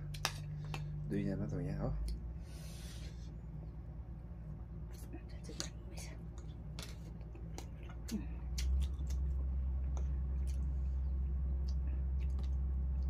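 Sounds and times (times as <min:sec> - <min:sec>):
steady low hum: 0:00.0 - 0:13.0
chewing: 0:04.9 - 0:13.0.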